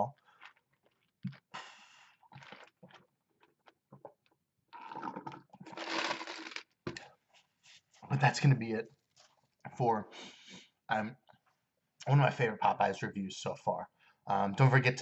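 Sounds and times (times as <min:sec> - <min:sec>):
sipping through a straw: 0:04.8 - 0:06.6.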